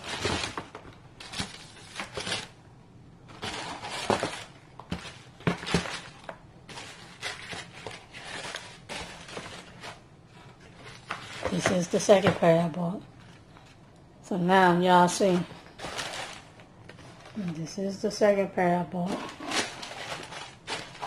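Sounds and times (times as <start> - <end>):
packaging rustling and crinkling: 0.0 - 2.6, 3.3 - 12.6, 15.2 - 17.6, 19.1 - 21.0.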